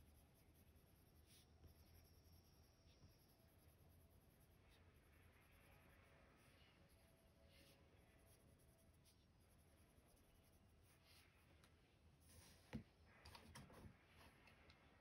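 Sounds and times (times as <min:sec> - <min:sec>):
pencil scratching on paper: 0:00.0 - 0:11.6.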